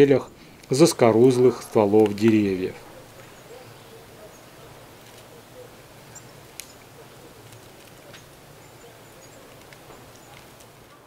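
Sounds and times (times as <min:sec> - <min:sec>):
faint forest ambience: 0:00.0 - 0:11.0
bird tapping on bark: 0:00.6 - 0:03.8, 0:06.0 - 0:10.8.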